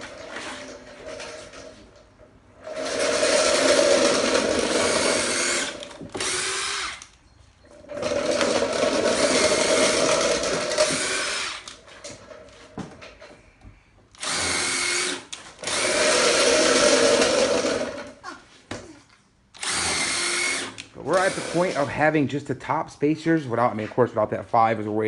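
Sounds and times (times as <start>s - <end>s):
cordless drill driving screws: 2.6s - 7.2s, 8.0s - 11.8s, 14.1s - 18.1s, 19.6s - 22.0s.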